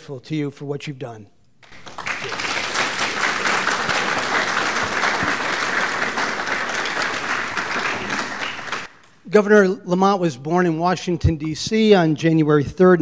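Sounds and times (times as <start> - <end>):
audience applauding: 1.6 - 8.9.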